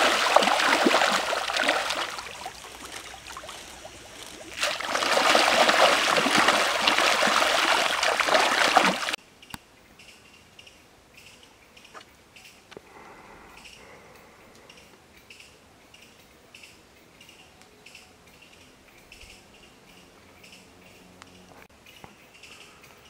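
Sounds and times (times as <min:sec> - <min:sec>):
fish splashing in water: 0:00.0 - 0:09.2.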